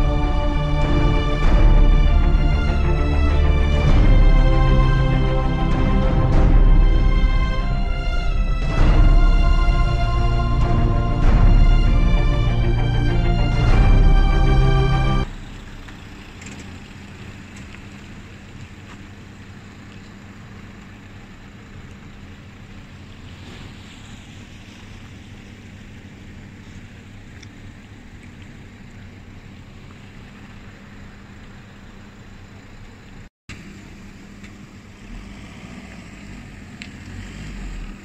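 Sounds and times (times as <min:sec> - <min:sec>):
music: 0:00.0 - 0:15.3
vehicle engine hum: 0:00.0 - 0:38.0.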